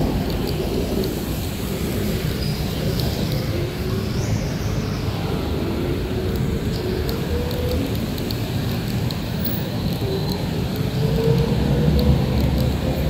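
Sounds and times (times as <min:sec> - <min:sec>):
steady low rumble: 0:00.0 - 0:13.0
vehicles passing on wet road: 0:00.0 - 0:13.0.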